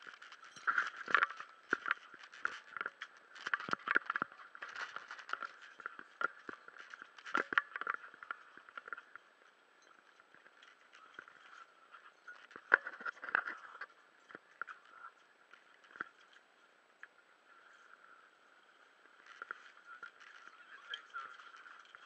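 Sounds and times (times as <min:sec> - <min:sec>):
scuba gear knocking and scraping: 0:00.0 - 0:09.2, 0:09.9 - 0:14.8.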